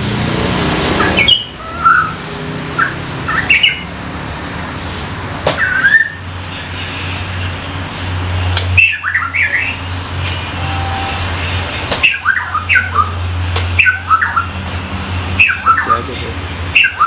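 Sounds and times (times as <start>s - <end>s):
bird calling pitch-bending phrases: 1.0s - 2.2s, 12.0s - 13.2s, 15.4s - 17.0s.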